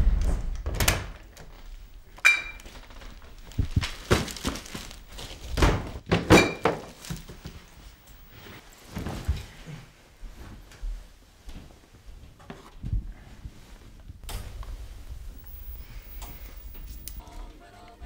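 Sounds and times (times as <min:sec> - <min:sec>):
plastic bags set down: 0:01.4 - 0:09.5
knocks and thuds: 0:03.4 - 0:07.4.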